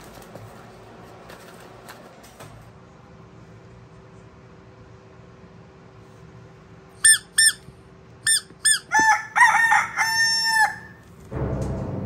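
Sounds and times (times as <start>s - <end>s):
rubber chicken squeaking: 7.0s - 9.4s
dark background music: 11.3s - 12.0s.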